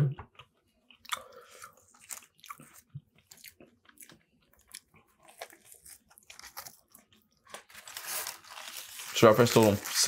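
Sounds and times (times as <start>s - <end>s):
person chewing food: 0.3s - 7.8s.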